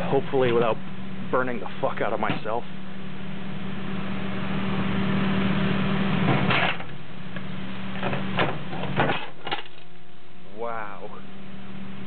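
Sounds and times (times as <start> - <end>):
steady electrical hum: 0.0 - 12.0
fan motor set down knocks: 0.3 - 0.8, 1.6 - 2.6, 6.2 - 10.0.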